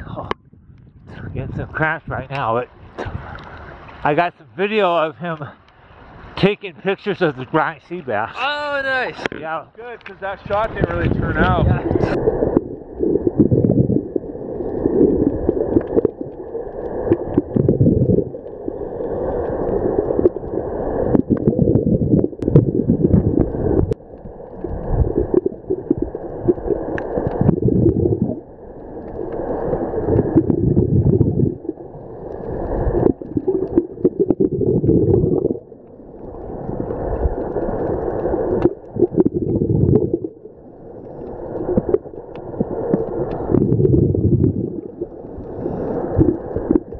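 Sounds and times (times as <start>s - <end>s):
bubbles gurgling: 11.0s - 46.9s
diver breathing through regulator: 45.4s - 46.4s.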